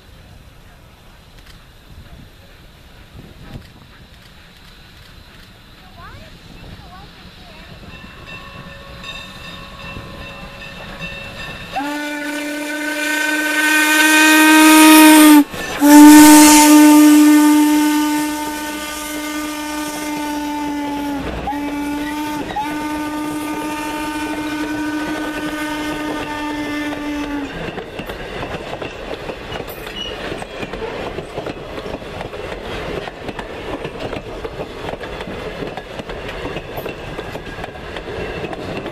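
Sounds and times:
train rumbling on rails: 0:00.0 - 0:38.9
steam locomotive whistle: 0:07.8 - 0:27.7.

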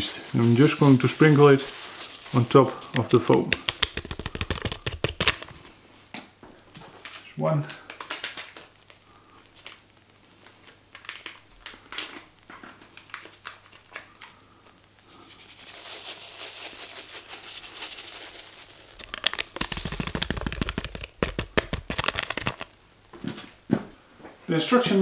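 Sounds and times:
yeast packet crinkling: 0:00.0 - 0:05.7, 0:07.7 - 0:09.0, 0:10.4 - 0:22.8.

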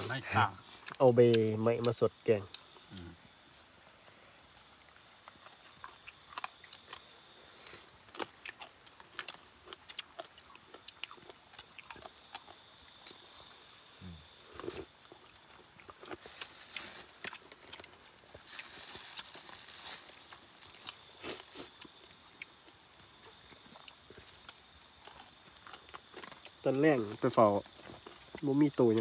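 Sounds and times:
person chewing: 0:05.2 - 0:13.3, 0:14.4 - 0:26.7.

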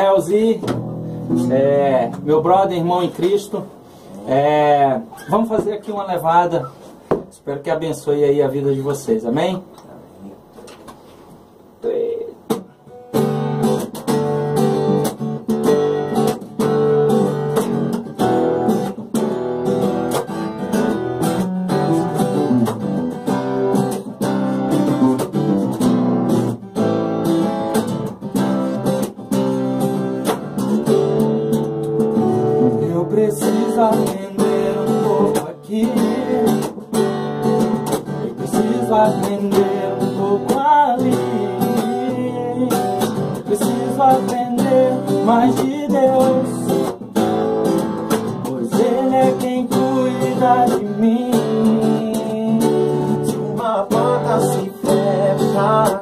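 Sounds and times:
acoustic guitar strumming: 0:00.0 - 0:05.9, 0:12.2 - 0:56.0
acoustic bass guitar: 0:00.0 - 0:08.6, 0:10.1 - 0:56.0
man singing: 0:32.6 - 0:36.9, 0:38.1 - 0:47.0, 0:48.4 - 0:56.0.

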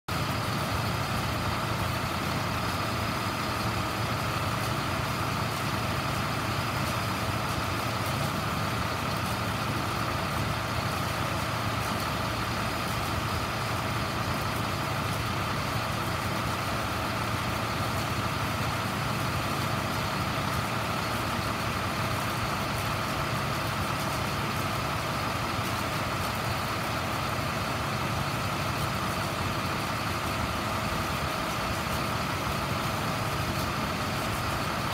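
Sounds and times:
diesel truck engine running: 0:00.1 - 0:34.9.

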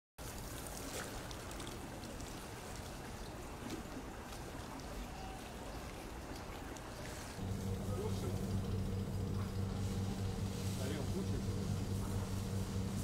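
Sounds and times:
small splashes: 0:00.2 - 0:07.4
water trickling and lapping: 0:00.2 - 0:13.0.

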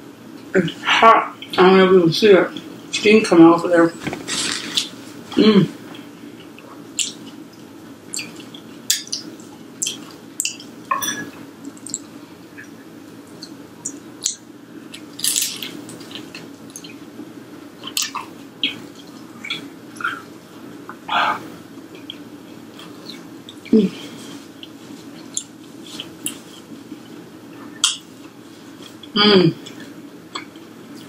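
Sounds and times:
faint hum: 0:00.0 - 0:31.0
crunchy chewing crackles: 0:04.2 - 0:10.9, 0:11.6 - 0:31.0
wet mouth clicks: 0:07.0 - 0:07.3.

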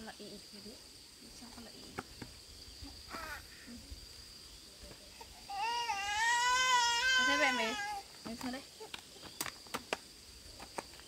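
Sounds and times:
high-pitched insect drone: 0:02.5 - 0:09.5
small child wailing: 0:03.1 - 0:03.6, 0:05.2 - 0:08.1.

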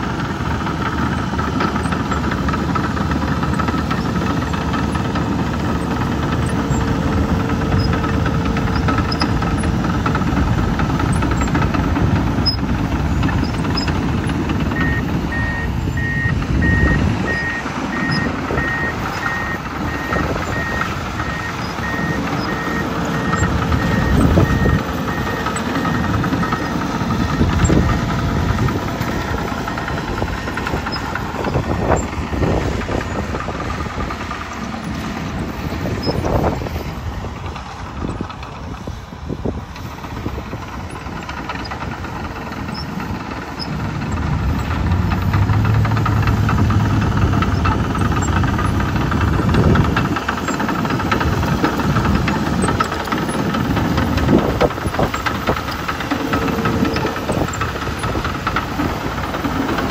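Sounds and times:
dozer diesel engine running: 0:00.0 - 0:59.9
backup alarm beeps: 0:14.8 - 0:32.6.

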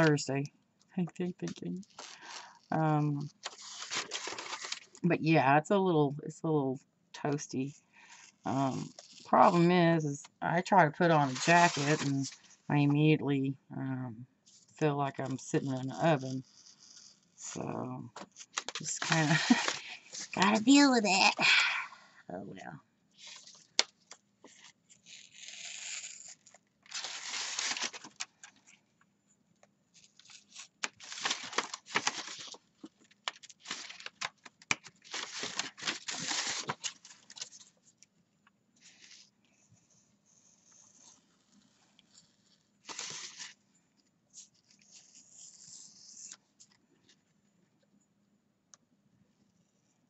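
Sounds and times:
knife cutting heavy paper: 0:24.5 - 0:28.2.

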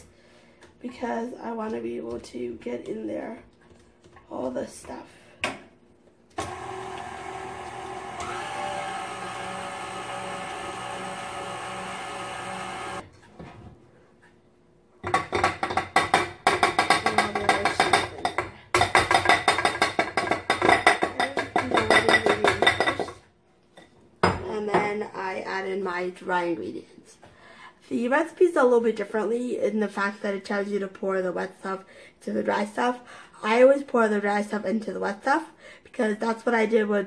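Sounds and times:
stand mixer motor running: 0:06.4 - 0:13.0.

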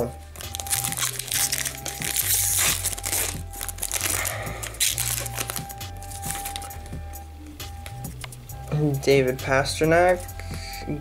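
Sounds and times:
foil wrapper crinkling: 0:00.0 - 0:06.8
background music with bass: 0:00.0 - 0:11.0.

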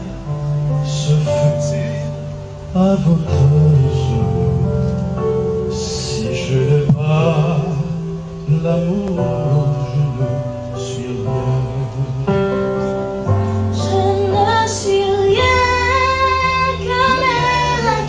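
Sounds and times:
sustained accompaniment chords: 0:00.0 - 0:18.0
woman singing: 0:13.8 - 0:18.0.

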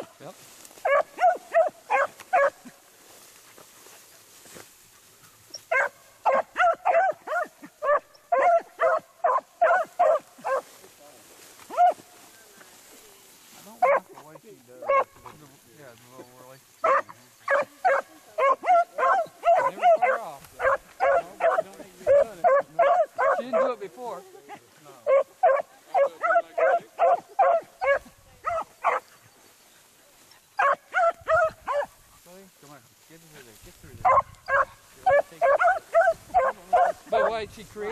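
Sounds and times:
hound baying in short calls: 0:00.8 - 0:02.8, 0:05.5 - 0:10.7, 0:11.7 - 0:12.0, 0:13.8 - 0:14.1, 0:14.8 - 0:15.3, 0:16.8 - 0:23.7, 0:24.4 - 0:29.2, 0:30.6 - 0:32.0, 0:34.0 - 0:37.4.

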